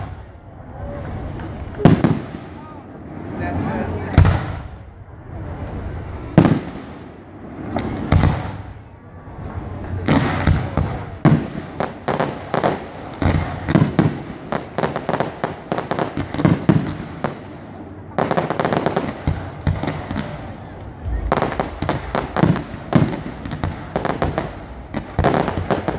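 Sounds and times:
firework crackles: 0.0 - 25.9
firework shells bursting: 19.0 - 25.9.

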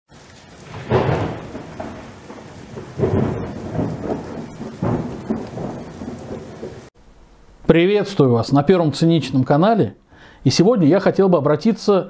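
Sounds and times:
steady rain: 0.1 - 7.0
rolls of thunder: 0.2 - 6.9.

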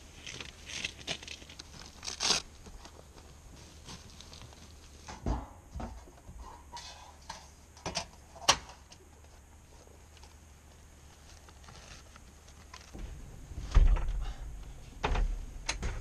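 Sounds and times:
canvas rustling: 0.0 - 5.1, 9.6 - 13.8
velcro ripping: 1.0 - 2.5
dull thump: 13.0 - 14.4.

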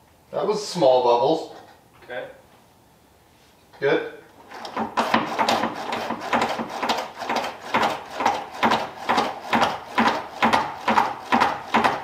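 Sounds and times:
brake pedal pumping strokes: 4.4 - 12.0.

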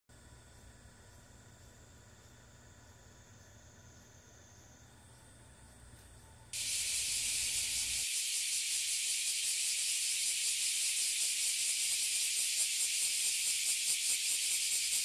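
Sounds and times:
cicadas buzzing: 6.6 - 15.0.

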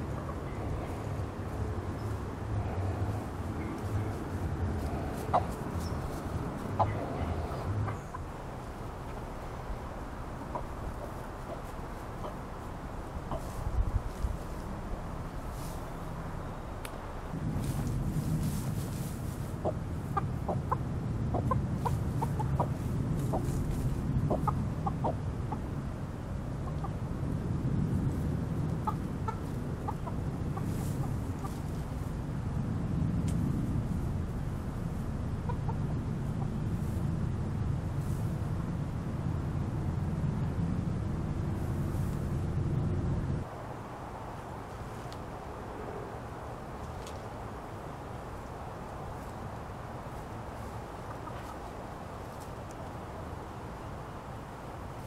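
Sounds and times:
low rumble: 0.0 - 44.1
chicken clucking: 3.0 - 8.4, 10.4 - 12.5, 13.2 - 13.6, 19.2 - 25.7, 26.6 - 27.0, 28.7 - 31.8, 35.5 - 37.0, 50.6 - 51.7.

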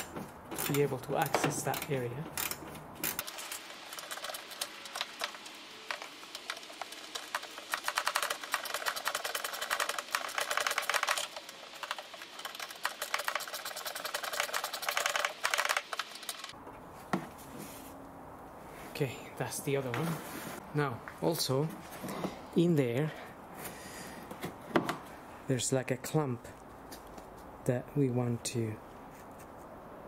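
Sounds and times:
ratchet wrench clicking: 0.6 - 16.6.

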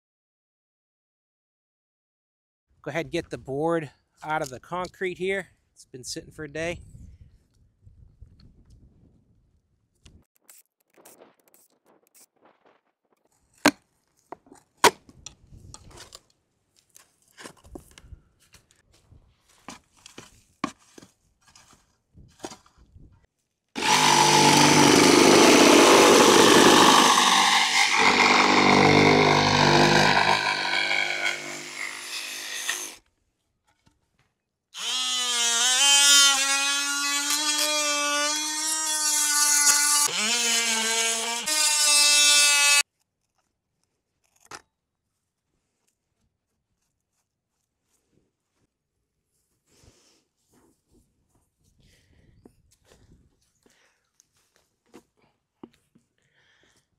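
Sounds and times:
reciprocating saw cutting plastic: 23.8 - 33.0, 34.8 - 43.5.

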